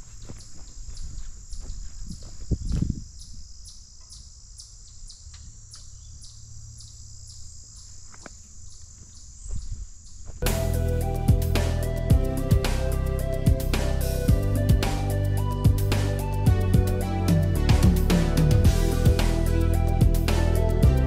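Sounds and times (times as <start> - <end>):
insects chirping: 0.0 - 17.2
music: 10.4 - 21.0.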